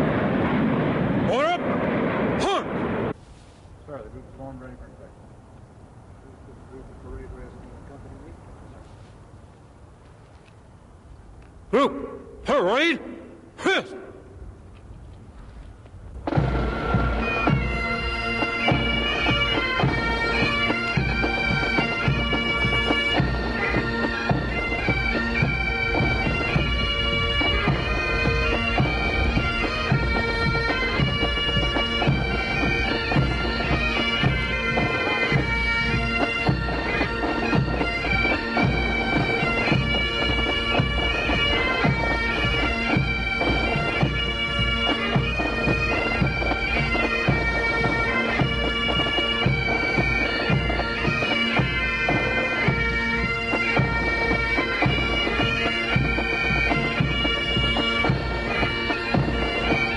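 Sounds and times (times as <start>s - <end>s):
bagpipes playing march: 16.1s - 59.9s.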